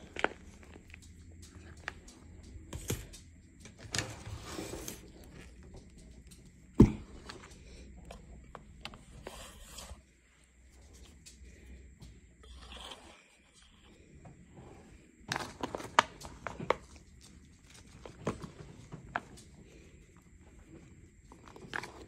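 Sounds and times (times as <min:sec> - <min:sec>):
chalk crumbling crackles: 0:00.0 - 0:06.5.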